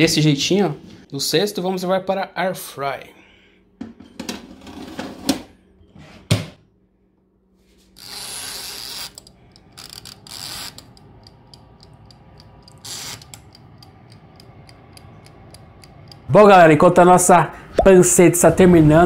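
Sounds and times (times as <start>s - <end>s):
timer knob rasping: 9.0s - 16.3s
mechanical timer ticking: 9.6s - 16.6s.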